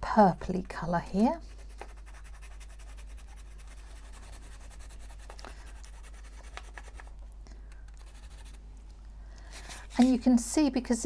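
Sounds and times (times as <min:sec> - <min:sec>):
pencil scratching on sandpaper: 0:01.5 - 0:07.1, 0:08.0 - 0:08.6.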